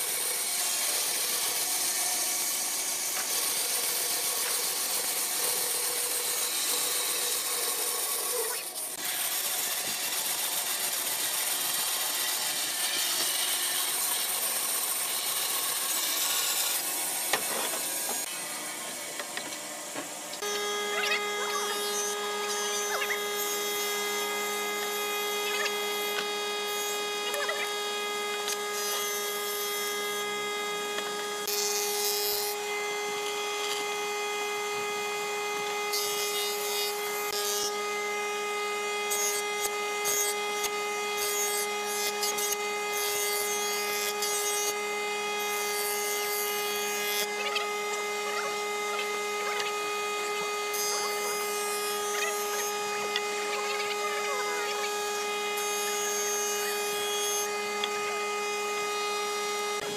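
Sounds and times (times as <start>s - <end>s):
planer motor humming: 16.2s - 35.9s, 36.6s - 59.9s
hissing wood shaving: 39.2s - 58.8s.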